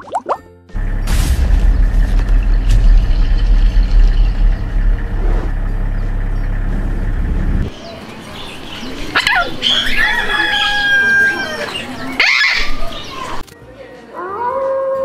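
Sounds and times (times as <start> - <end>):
steady low rumble: 0.7 - 9.1.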